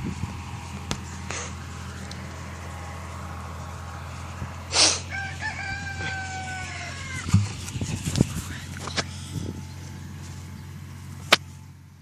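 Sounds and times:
tractor engine drone: 0:00.0 - 0:12.0
rooster crowing: 0:05.0 - 0:07.4.

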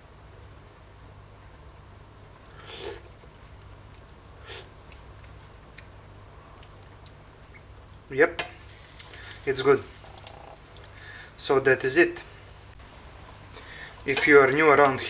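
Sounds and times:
low steady hum: 0:00.0 - 0:15.0
slurping sips from spoon: 0:02.4 - 0:03.1, 0:04.4 - 0:04.7.

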